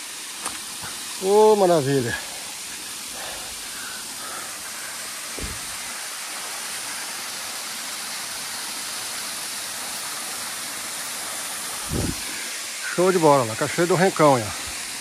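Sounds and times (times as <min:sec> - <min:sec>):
waterfall rushing: 0:00.0 - 0:15.0
low thump: 0:05.3 - 0:05.8.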